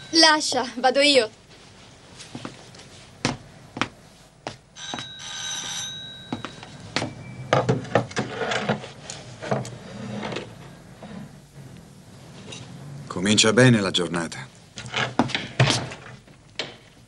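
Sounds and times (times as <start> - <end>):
electric doorbell ringing: 4.8 - 7.5.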